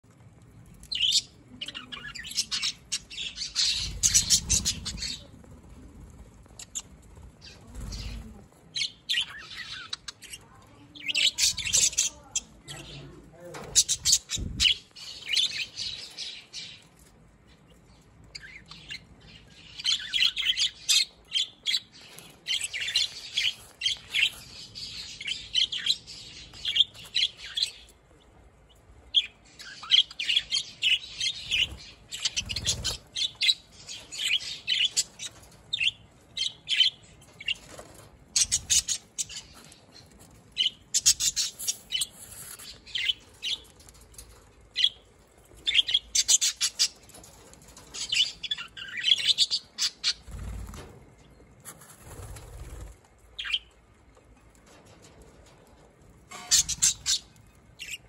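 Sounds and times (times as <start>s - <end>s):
budgerigars chattering: 1.0s - 5.3s, 56.3s - 58.0s.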